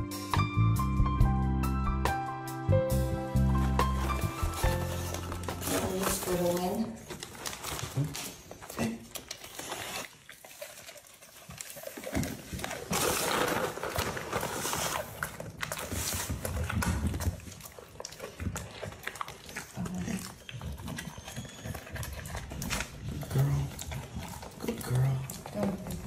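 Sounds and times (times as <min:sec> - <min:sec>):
dog sniffing: 0:03.3 - 0:13.5
dog chewing treats: 0:03.5 - 0:26.0.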